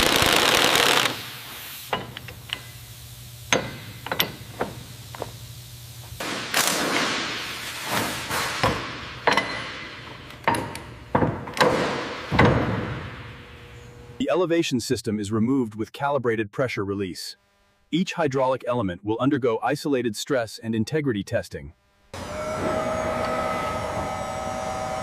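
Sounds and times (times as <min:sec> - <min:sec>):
metal clanks and knocks: 0:01.9 - 0:02.8, 0:03.5 - 0:05.4, 0:07.9 - 0:13.1.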